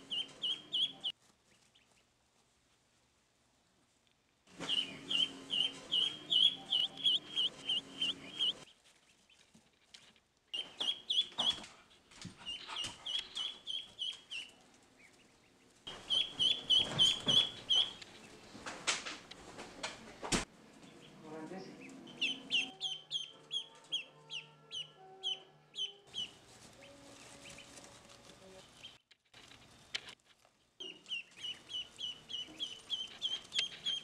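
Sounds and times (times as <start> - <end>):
duckling peeping: 0.0 - 2.1, 4.5 - 9.6, 10.5 - 18.4, 20.8 - 21.2, 21.8 - 30.2, 30.8 - 34.0.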